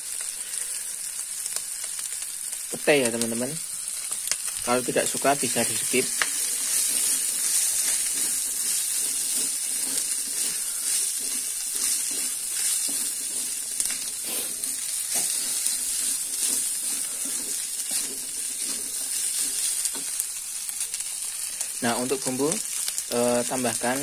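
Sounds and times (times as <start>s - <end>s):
food sizzling in a wok: 0.0s - 24.0s
spatula scraping and tapping a pan: 6.1s - 20.2s.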